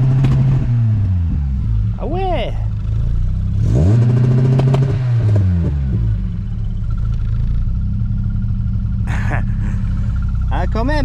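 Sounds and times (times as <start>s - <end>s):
car engine idling: 0.0s - 11.0s
car engine stuttering at rev limiter: 2.7s - 11.0s.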